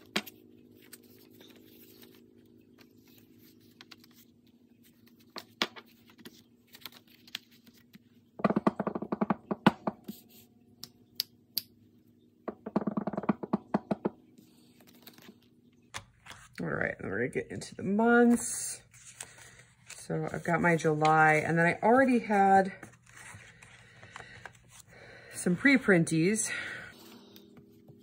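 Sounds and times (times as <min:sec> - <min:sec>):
paper rustling and crinkling: 0:00.0 - 0:08.2, 0:14.6 - 0:16.6, 0:18.3 - 0:21.1, 0:22.8 - 0:24.9
faint steady hum: 0:00.0 - 0:28.0.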